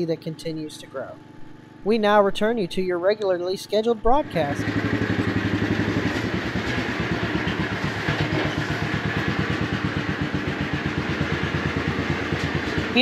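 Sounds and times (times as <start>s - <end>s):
small engine running steadily: 4.1s - 13.0s.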